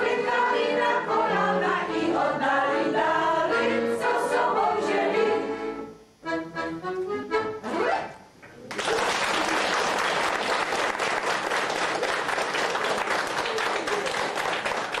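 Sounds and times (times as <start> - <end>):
audience applauding: 8.7 - 15.0.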